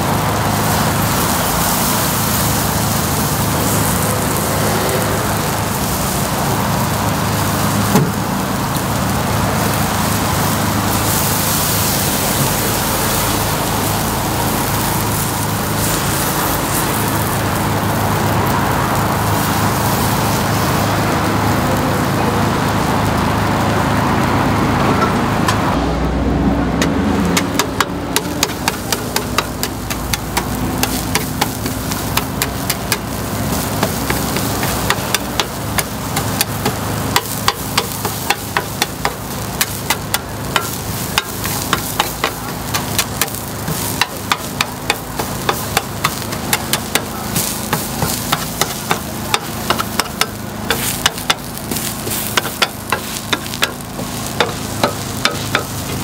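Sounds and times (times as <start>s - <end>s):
batter sizzling in a pan: 0.0s - 24.8s, 26.8s - 56.0s
street traffic rumbling: 0.0s - 56.0s
metal picks tapping a pan: 26.8s - 56.0s.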